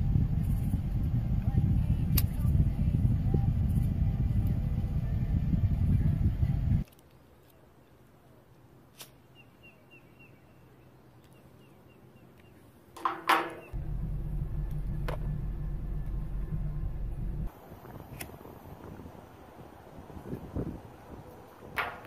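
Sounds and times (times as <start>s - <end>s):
low rumble inside a car: 0.0s - 6.8s, 13.8s - 18.0s
faint bird chirps: 9.3s - 12.7s.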